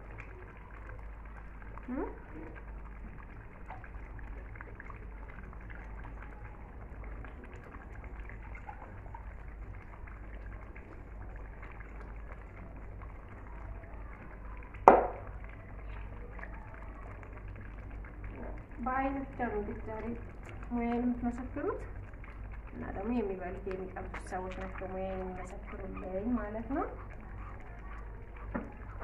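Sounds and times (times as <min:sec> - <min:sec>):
water splashing in basin: 0:00.0 - 0:29.0
sharp knock: 0:14.9 - 0:15.2.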